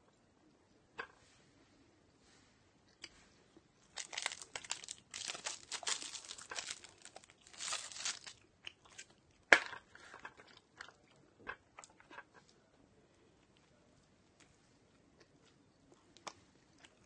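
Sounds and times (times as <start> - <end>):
plastic crinkling and rustling: 3.8 - 9.1.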